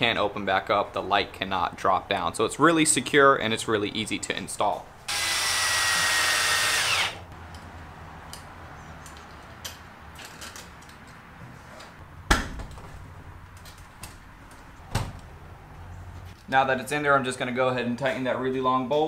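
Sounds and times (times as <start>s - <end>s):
cordless drill whining: 5.1s - 7.3s.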